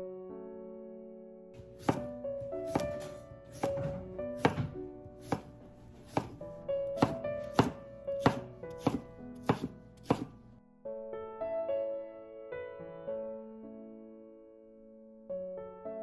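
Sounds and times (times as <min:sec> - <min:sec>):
soft piano music: 0:00.0 - 0:16.0
knife chopping on wooden board: 0:01.6 - 0:10.4.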